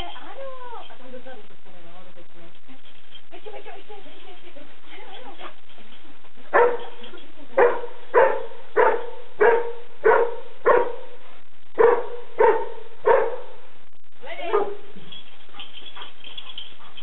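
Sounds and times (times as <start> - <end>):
dog barking: 6.5 - 11.2, 11.8 - 13.6, 14.5 - 14.9.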